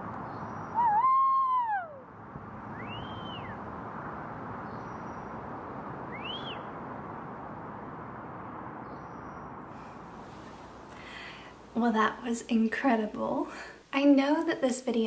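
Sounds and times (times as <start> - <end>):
distant city noise: 0.0 - 13.8
faint high calls: 0.5 - 2.1, 2.7 - 3.7.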